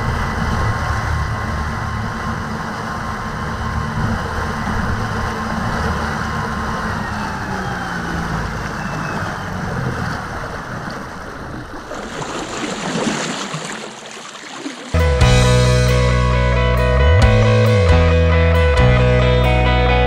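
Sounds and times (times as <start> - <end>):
faint motor whine: 0.0 - 11.8
water rushing past hull: 0.0 - 15.4.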